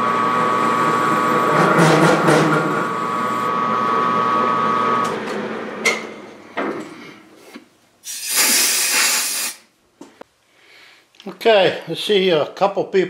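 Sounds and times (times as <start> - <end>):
machine spindle whine: 0.0 - 6.3
burst of hiss: 8.0 - 9.7.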